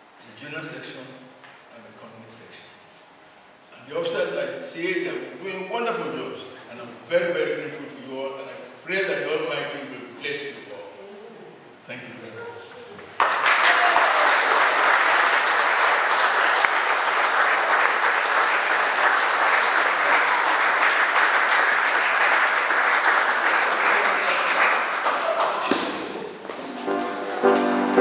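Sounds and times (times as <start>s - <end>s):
audience applauding: 13.1s - 27.0s.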